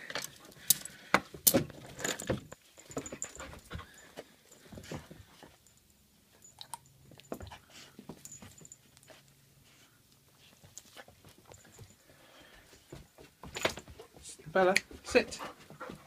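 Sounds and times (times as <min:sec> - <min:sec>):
dog panting: 0:03.0 - 0:05.5, 0:14.9 - 0:16.0.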